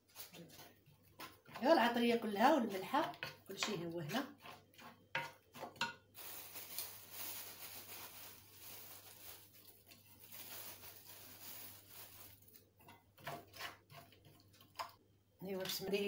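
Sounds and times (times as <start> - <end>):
herbs rustling between fingers: 6.2 - 12.6.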